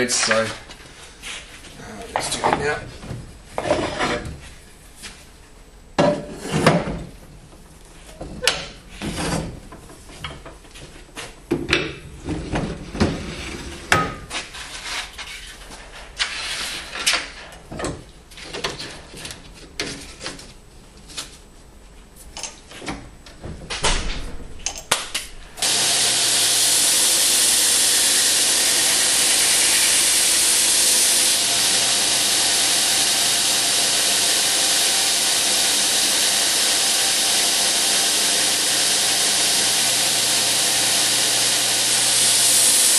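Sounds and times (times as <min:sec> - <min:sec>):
belt grinder running: 0:25.6 - 0:42.9.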